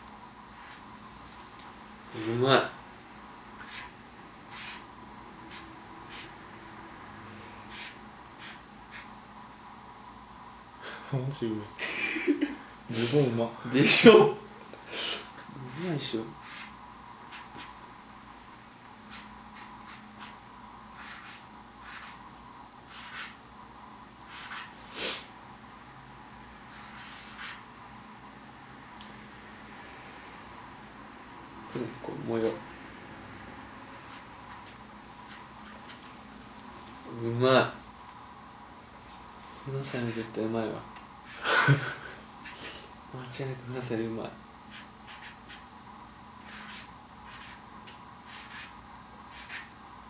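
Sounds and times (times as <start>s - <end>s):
pen scratching on paper: 0.6s - 0.8s, 3.6s - 4.8s, 5.5s - 6.3s, 7.7s - 9.1s, 15.7s - 16.7s, 17.3s - 17.8s, 19.1s - 20.4s, 21.0s - 22.2s, 22.9s - 23.4s, 24.3s - 24.8s, 26.7s - 27.6s, 33.9s - 36.0s, 44.7s - 45.7s, 46.4s - 47.6s, 48.2s - 49.7s.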